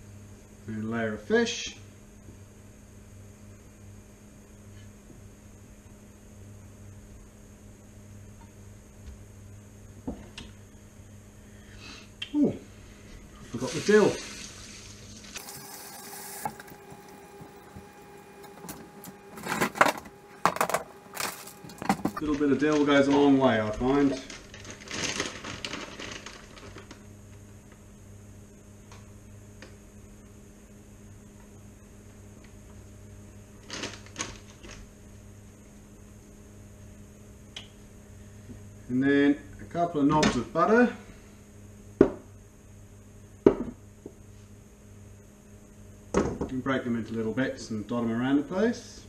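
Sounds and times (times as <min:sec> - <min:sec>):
faint steady hum: 0:00.0 - 0:49.0
plastic containers clattering: 0:17.4 - 0:26.9.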